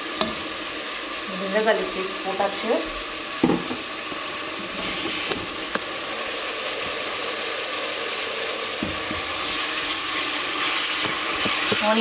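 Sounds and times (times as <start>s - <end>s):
onions sizzling in hot oil: 0.0s - 12.0s.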